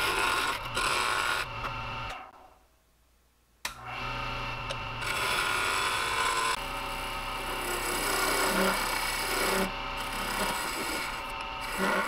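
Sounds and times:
wood lathe motor hum: 0.0s - 2.2s, 3.8s - 12.0s
turning tool scraping plastic: 7.6s - 12.0s.

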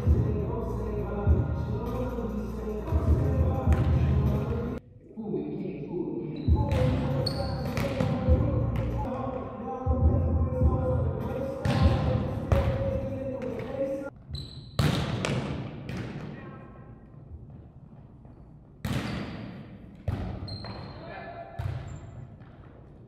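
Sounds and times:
volleyball hits echoing in gym: 6.5s - 9.4s, 11.6s - 16.6s, 17.4s - 23.0s.

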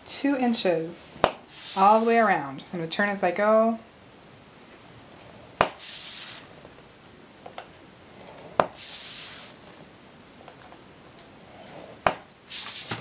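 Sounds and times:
scoring tool scraping cardstock: 1.5s - 2.3s, 5.8s - 6.5s, 8.8s - 9.6s, 12.5s - 13.0s.

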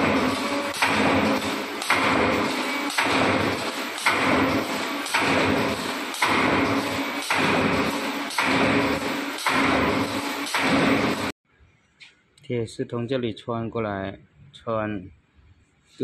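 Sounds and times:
sharp machine click: 0.0s - 11.3s
wire forming machine running: 0.0s - 11.4s.

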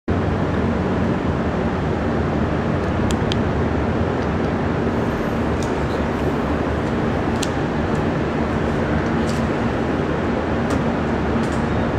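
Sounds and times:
car engine idling: 4.8s - 11.9s.

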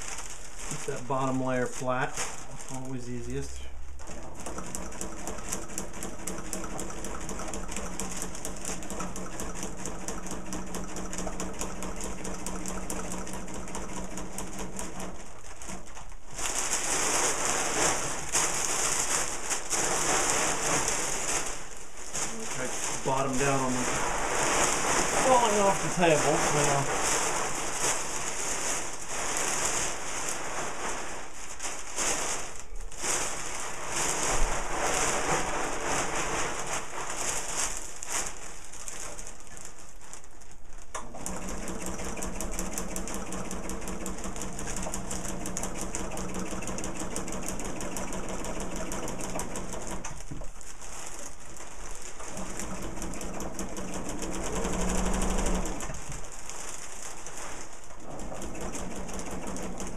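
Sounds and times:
fabric rustling: 0.0s - 59.9s
sewing machine stitching: 4.0s - 31.2s, 40.9s - 50.6s, 51.5s - 59.9s.

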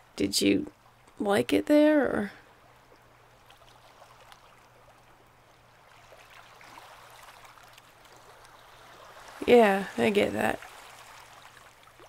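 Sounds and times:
waves washing on shore: 5.8s - 12.0s.

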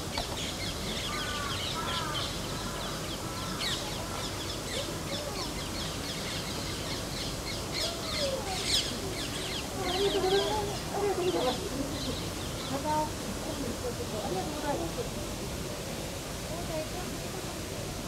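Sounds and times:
outdoor background noise: 0.0s - 18.0s
birds chirping and calling: 0.1s - 13.0s.

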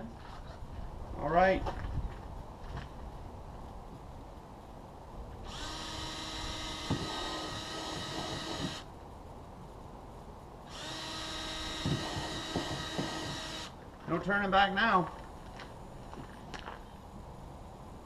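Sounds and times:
power drill whining: 5.5s - 8.8s, 10.7s - 13.7s.

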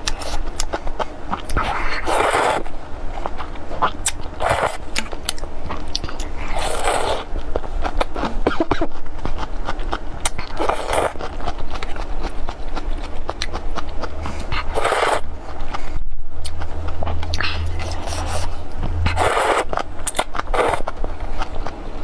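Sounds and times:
wet chewing and lip-smacking: 0.0s - 21.8s
slurping noodles: 1.6s - 2.7s, 3.8s - 4.8s, 6.6s - 7.3s, 10.5s - 11.3s, 14.2s - 15.2s, 17.8s - 20.9s.

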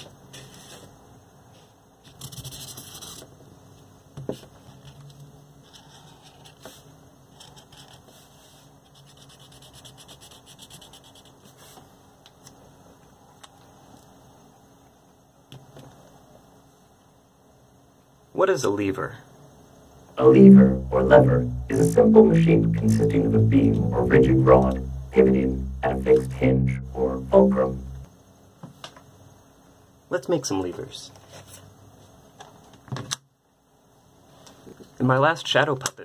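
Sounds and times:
marker scratching on cardboard: 8.9s - 11.4s.

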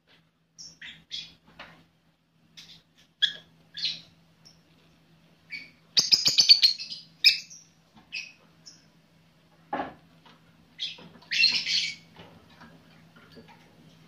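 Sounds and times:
lovebirds chirping: 0.6s - 1.4s, 2.6s - 4.7s, 5.4s - 8.9s.

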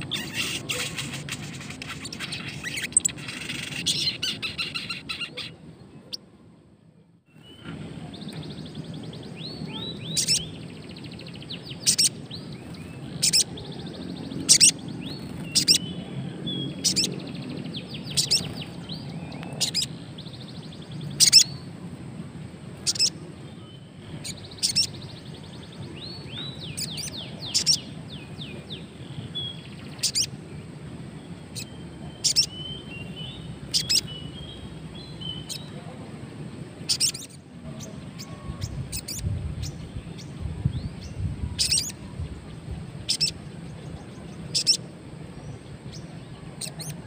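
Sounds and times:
high bird twittering: 0.0s - 6.2s, 7.3s - 21.7s, 22.8s - 30.4s, 31.5s - 35.8s, 36.8s - 42.2s, 43.0s - 44.9s, 45.9s - 47.0s
bird chipping sharply: 9.4s - 10.6s, 11.6s - 16.0s, 17.9s - 19.9s, 31.6s - 34.6s.

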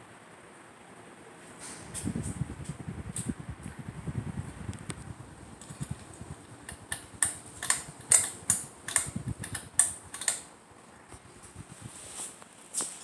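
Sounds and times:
ceiling fan running: 0.0s - 13.0s
sharp clicks: 6.6s - 10.5s.

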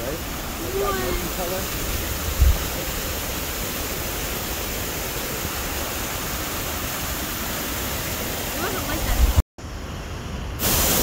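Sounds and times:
waterfall rushing into pool: 0.0s - 11.0s
low thump: 2.4s - 2.6s.

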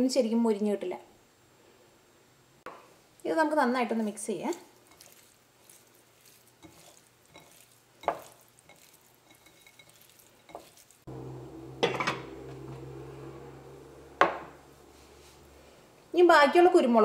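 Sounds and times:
hands squelching shrimp in bowl: 3.8s - 11.1s
steady hum: 11.1s - 16.2s
knock against ceramic bowl: 14.2s - 14.5s.

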